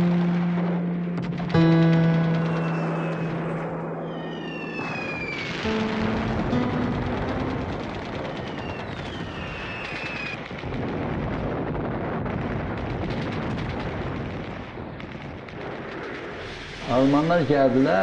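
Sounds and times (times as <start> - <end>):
rapid gunfire: 0.0 - 17.2
explosions: 0.0 - 18.0
falling whistle: 2.1 - 10.4.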